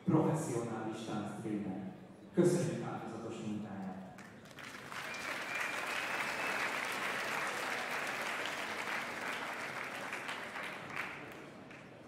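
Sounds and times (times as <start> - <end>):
large audience applauding: 4.2 - 12.0.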